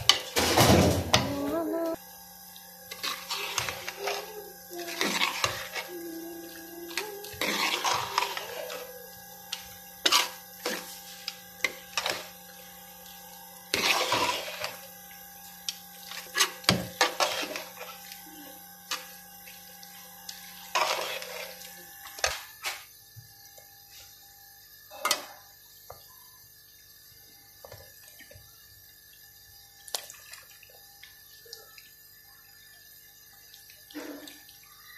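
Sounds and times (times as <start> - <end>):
steady low hum: 0.3 - 22.3.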